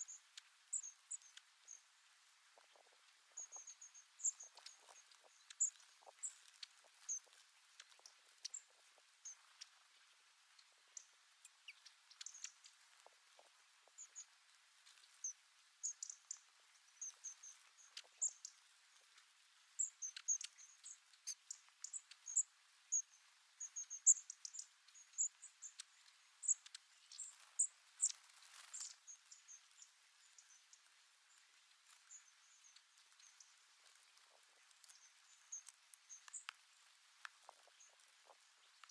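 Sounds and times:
faint clicks: 0:24.0 - 0:38.9.

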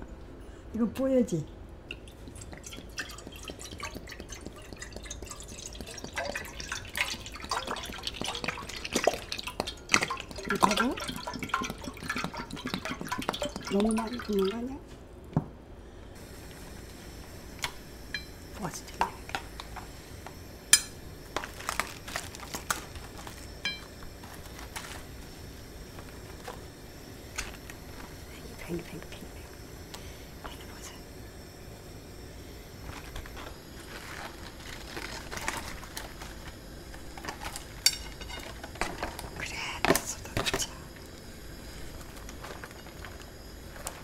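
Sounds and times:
liquid pouring into water: 0:01.9 - 0:14.7
small drips and splashes: 0:01.9 - 0:14.7.

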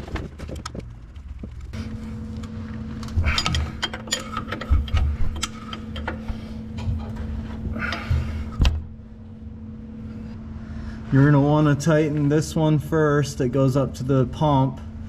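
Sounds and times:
steady background hum: 0:00.0 - 0:15.0
metal lines clicking and rubbing: 0:02.4 - 0:08.6.

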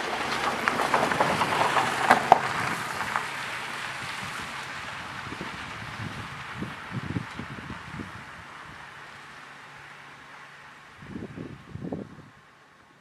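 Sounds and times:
car tyres crunching on wet gravel: 0:00.0 - 0:11.4.

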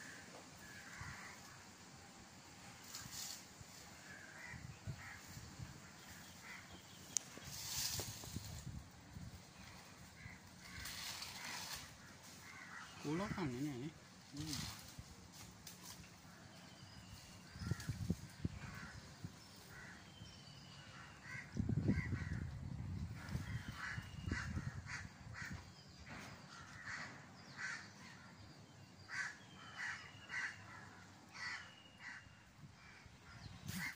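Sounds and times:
birds calling: 0:00.0 - 0:33.9.

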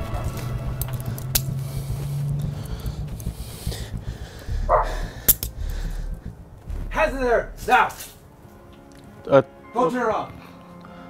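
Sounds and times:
low steady drone: 0:00.0 - 0:09.2
handcuffs clicking shut: 0:00.8 - 0:01.5, 0:05.3 - 0:05.5
sharp snap: 0:00.8 - 0:06.2.

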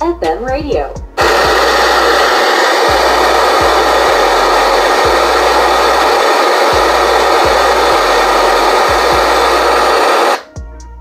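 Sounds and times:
radio static hiss: 0:01.2 - 0:10.5.

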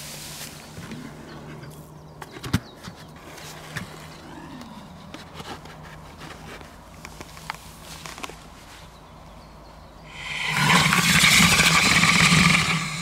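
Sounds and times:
light clicks and scrapes: 0:05.1 - 0:08.9.

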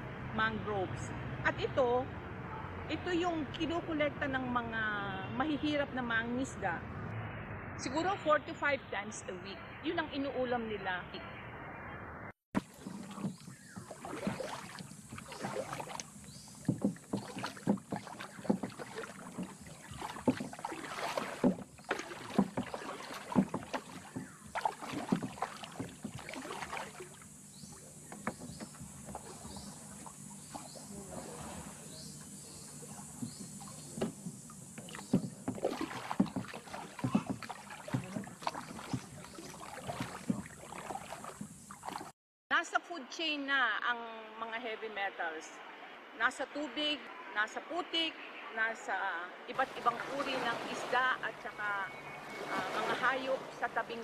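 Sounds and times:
paddle splashing in water: 0:12.6 - 0:42.2, 0:49.6 - 0:54.0.

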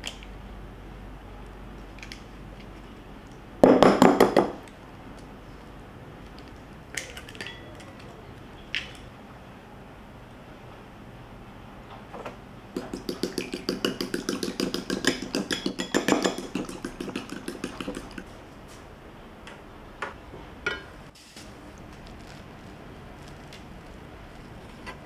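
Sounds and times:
eggs beaten in ceramic bowl: 0:12.8 - 0:18.3.

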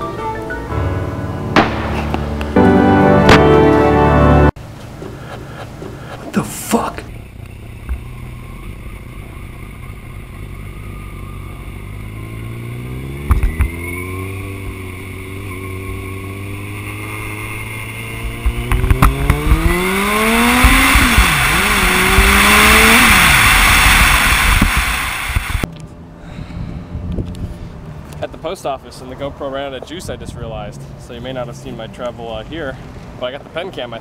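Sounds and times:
sharp knocks: 0:01.6 - 0:02.6
motorcycle engine accelerating: 0:07.1 - 0:25.7.

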